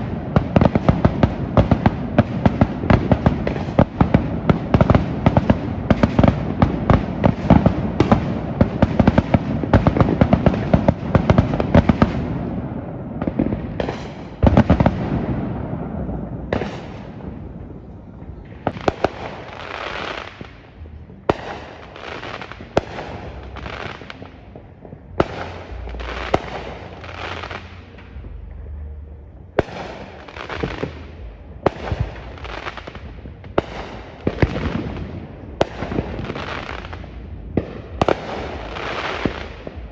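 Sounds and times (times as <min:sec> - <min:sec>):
fireworks bangs and crackling: 0:00.0 - 0:39.9.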